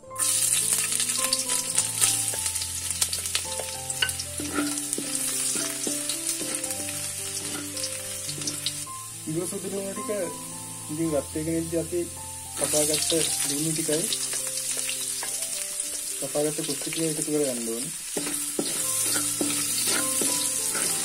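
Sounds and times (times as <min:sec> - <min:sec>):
food sizzling in oil: 0:00.0 - 0:21.0
wooden spatula stirring: 0:03.3 - 0:08.7, 0:18.1 - 0:21.0.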